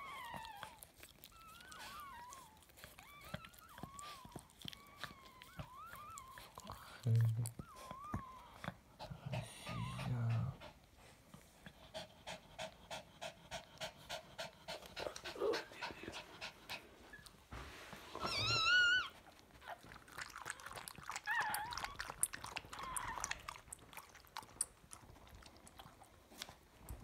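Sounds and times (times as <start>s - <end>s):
dog panting: 0.0s - 17.5s.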